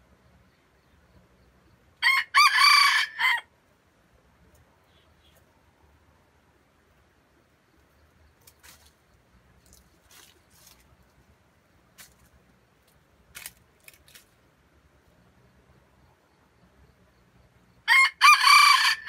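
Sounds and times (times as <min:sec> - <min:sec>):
faint clicks and rustles: 0:07.8 - 0:14.5.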